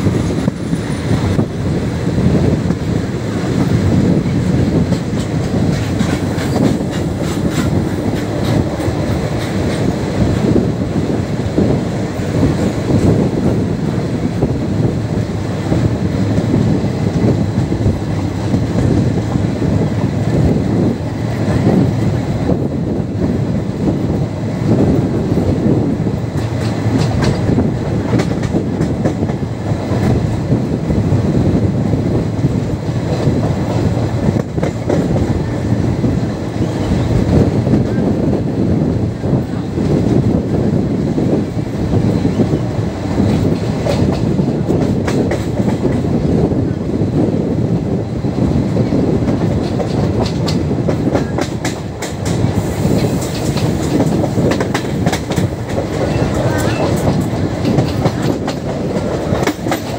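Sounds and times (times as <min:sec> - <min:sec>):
train wheels rumbling on track: 0:00.0 - 0:59.9
wheels clacking over rail joints: 0:02.6 - 0:13.6, 0:26.1 - 0:30.8, 0:48.8 - 0:59.9.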